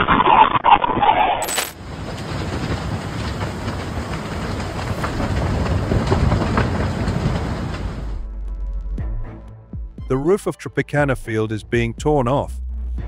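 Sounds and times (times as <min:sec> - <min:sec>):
strong wind blowing: 0:01.8 - 0:08.2.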